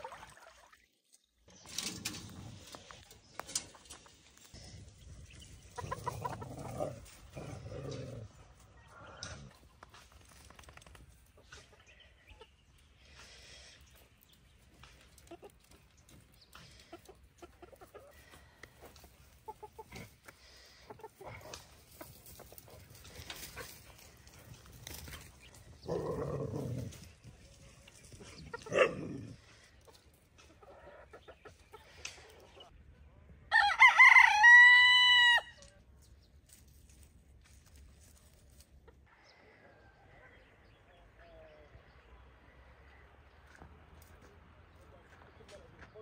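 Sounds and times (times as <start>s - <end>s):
chickens pecking and scratching: 1.5s - 32.8s, 35.6s - 39.2s
chickens clucking: 1.6s - 10.0s, 11.2s - 26.3s, 26.9s - 32.8s, 37.7s - 42.0s
rooster crowing: 33.5s - 35.6s.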